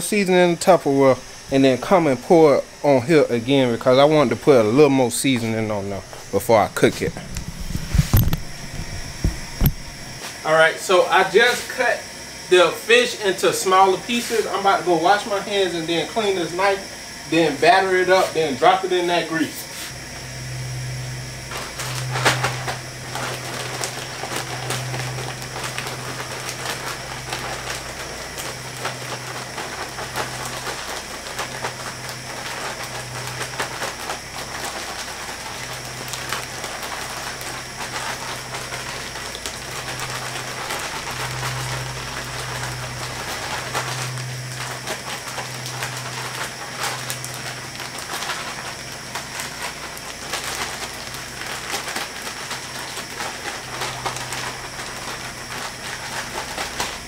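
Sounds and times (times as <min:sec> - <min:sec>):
oil sizzling and crackling: 0:00.2 - 0:10.5, 0:19.7 - 0:57.0
low hum: 0:19.9 - 0:34.9.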